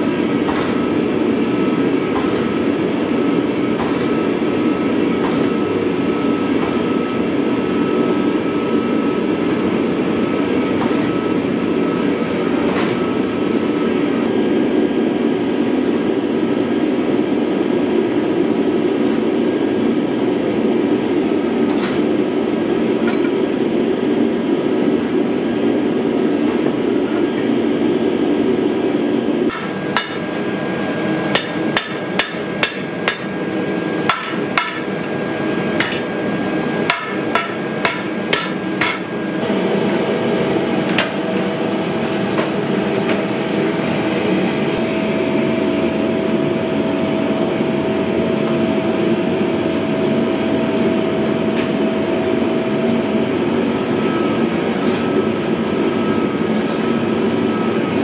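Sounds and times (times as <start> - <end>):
steady hum: 0.0 - 58.0
workshop machine roar: 0.0 - 58.0
hammer striking blade on anvil: 29.5 - 30.4, 31.3 - 33.5, 34.1 - 35.0, 36.8 - 39.1
anvil ringing: 31.4 - 33.5, 34.1 - 34.9, 36.9 - 39.1.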